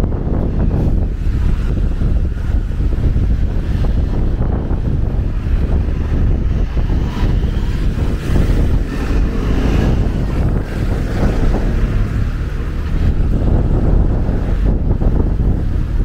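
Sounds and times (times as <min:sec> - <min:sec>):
street traffic: 0:00.0 - 0:16.0
wind buffeting microphone: 0:00.0 - 0:16.0
minibus driving past: 0:04.8 - 0:15.7.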